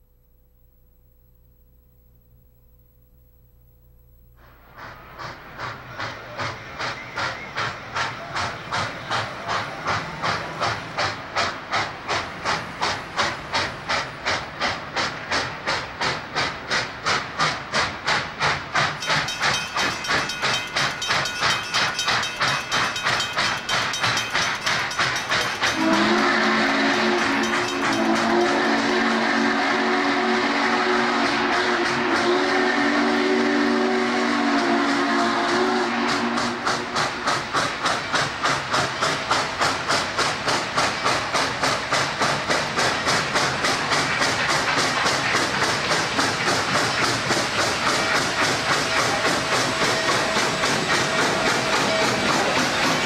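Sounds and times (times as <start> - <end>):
steam hissing: 4.4 - 53.0
steam locomotive exhaust chuffs: 4.4 - 53.0
steam whistle chord: 25.5 - 37.1, 48.0 - 53.0.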